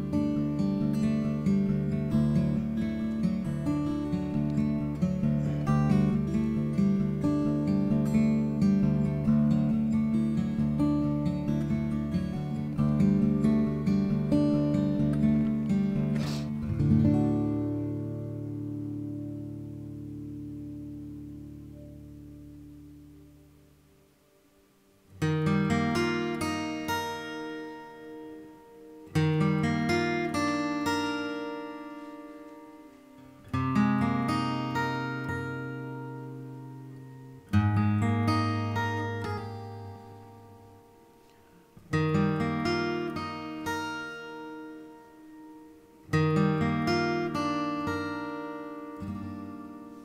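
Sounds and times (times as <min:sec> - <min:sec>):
plucked acoustic guitar music: 0:00.0 - 0:24.4, 0:25.1 - 0:50.0.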